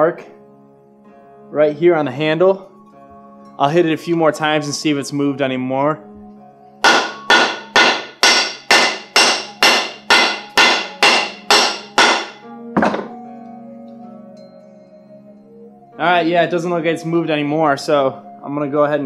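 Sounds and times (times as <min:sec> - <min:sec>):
hammer blows on wooden handle: 0:06.8 - 0:13.2.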